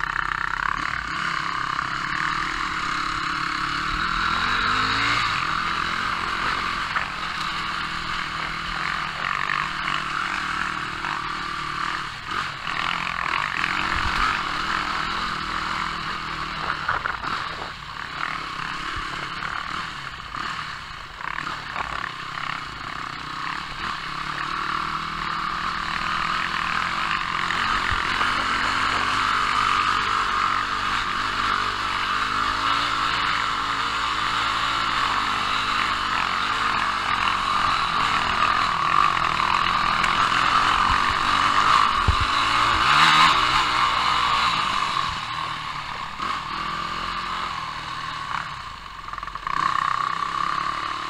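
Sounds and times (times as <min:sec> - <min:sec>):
dirt bike engine under throttle: 0:00.0 - 0:51.0
clatter from rocky track: 0:16.4 - 0:19.8, 0:21.2 - 0:24.0, 0:26.3 - 0:31.2.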